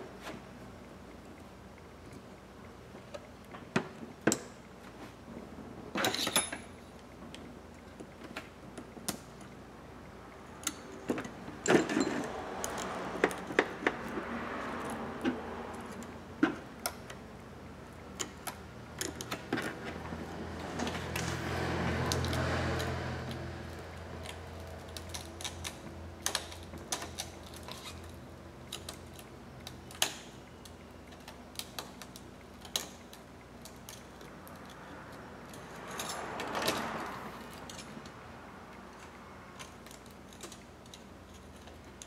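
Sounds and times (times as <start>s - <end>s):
small tools clicking and tapping: 10.6s - 17.2s, 18.1s - 42.0s.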